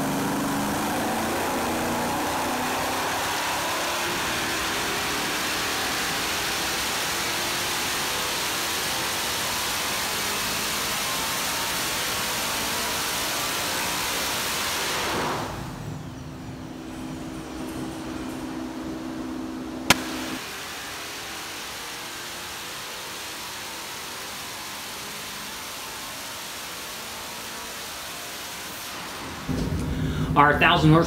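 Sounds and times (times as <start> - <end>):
engine running hard with supercharger: 0.0 - 30.4.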